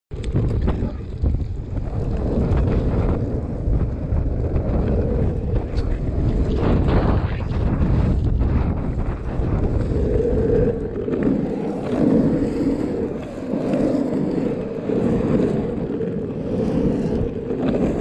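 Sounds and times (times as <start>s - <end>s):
skateboard wheels rolling on asphalt: 0.1s - 18.0s.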